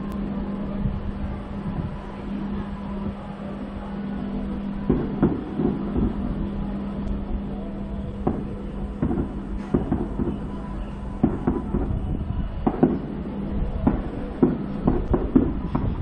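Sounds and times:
steady low rumble: 0.0s - 16.0s
distant fireworks booming: 4.5s - 16.0s.

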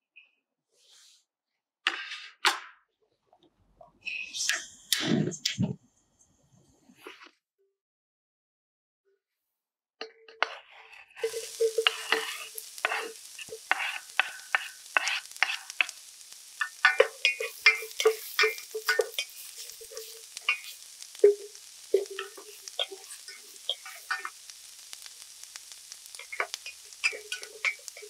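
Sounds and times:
wooden spoon scraping a pot: 10.4s - 16.0s, 16.6s - 24.4s, 26.1s - 28.0s
onion sizzling in hot oil: 11.0s - 28.0s.

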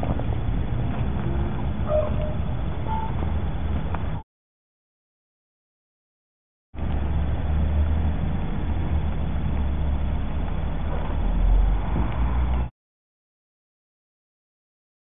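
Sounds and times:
low outdoor rumble: 0.0s - 4.2s, 6.8s - 12.7s.

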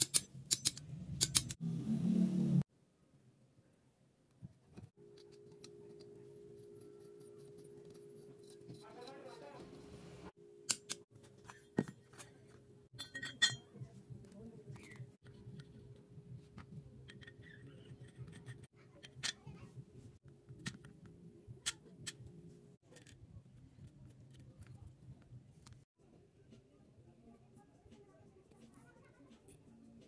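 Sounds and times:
metal tools clinking: 12.9s - 13.8s.

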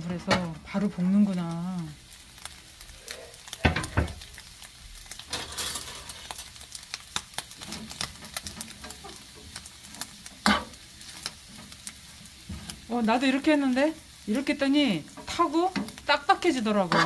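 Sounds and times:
light sizzle of frying: 0.0s - 17.0s
metal utensil scraping a pan: 5.2s - 6.4s, 7.6s - 10.8s, 16.8s - 17.0s.

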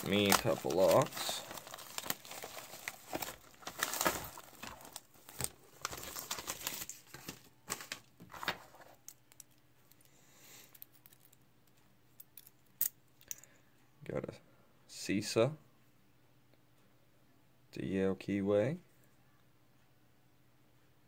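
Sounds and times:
paper packaging crinkling and tearing: 0.0s - 9.0s.

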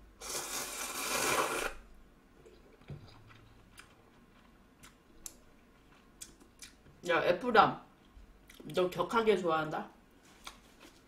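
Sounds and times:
person slurping noodles: 0.2s - 1.8s.

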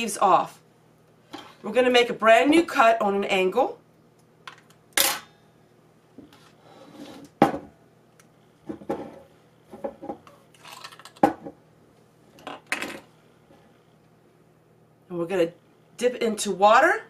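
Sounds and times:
kitchen items clattering on tabletop: 8.7s - 11.6s, 12.4s - 13.1s.

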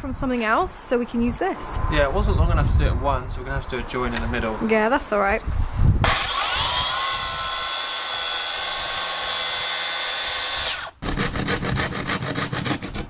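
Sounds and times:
saw blade spinning down: 6.0s - 11.0s
track saw whining: 6.0s - 11.5s.

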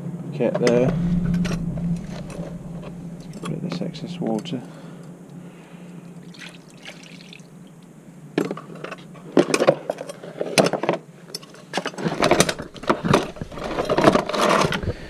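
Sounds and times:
water splashing into tray: 6.3s - 7.5s.

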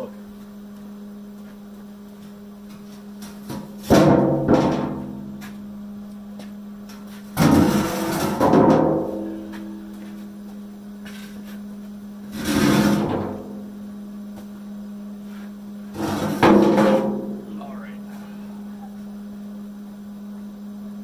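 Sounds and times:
steady low hum: 0.0s - 21.0s
steel bucket scraping on concrete: 7.4s - 8.7s, 12.3s - 13.5s, 15.9s - 17.1s.

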